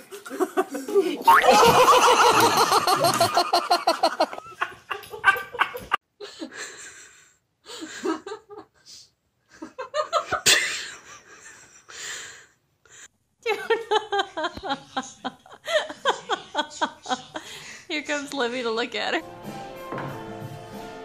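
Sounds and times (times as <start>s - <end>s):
person laughing hard: 0.3s - 6.0s.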